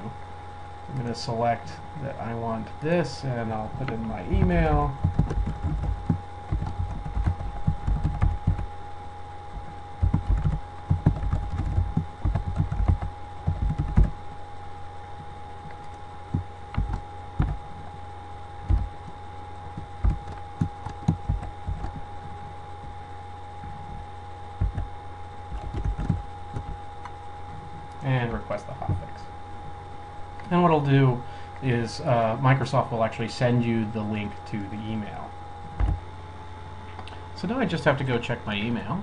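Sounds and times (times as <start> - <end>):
steady electrical hum: 0.0 - 39.0
typing on computer keyboard: 4.4 - 8.7, 10.0 - 14.1, 15.8 - 17.6, 19.8 - 22.0, 24.6 - 24.8, 25.5 - 26.8.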